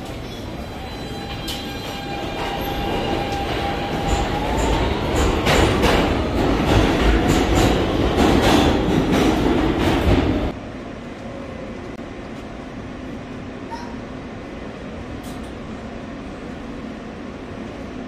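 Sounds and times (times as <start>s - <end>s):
subway train running on rails: 0.0s - 18.0s.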